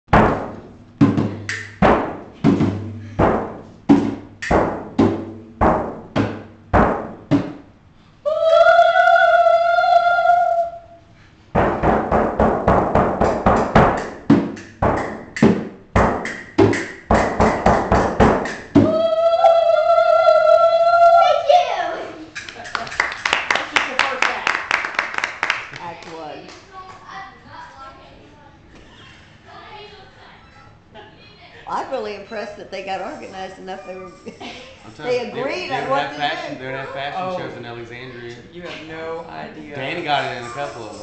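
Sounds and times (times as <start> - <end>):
frame drum struck with stick: 0.1 - 7.6, 11.6 - 18.9
children calling ooo: 18.8 - 22.3.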